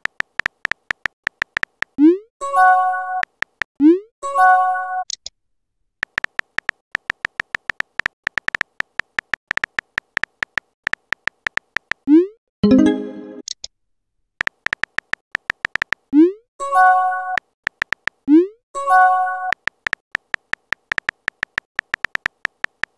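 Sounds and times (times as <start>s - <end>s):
rapid keyboard typing clicks: 0.0s - 2.0s, 3.2s - 3.7s, 6.0s - 12.1s, 14.4s - 16.1s, 17.3s - 18.3s, 19.4s - 22.9s.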